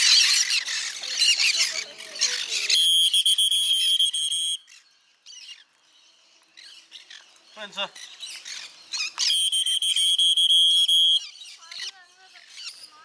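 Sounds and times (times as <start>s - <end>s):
parrots squawking and chattering: 0.0s - 2.8s.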